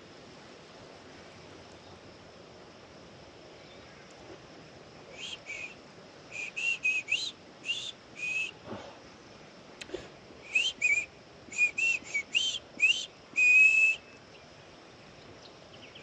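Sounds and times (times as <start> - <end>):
person whistling: 6.4 - 8.6, 10.5 - 14.0.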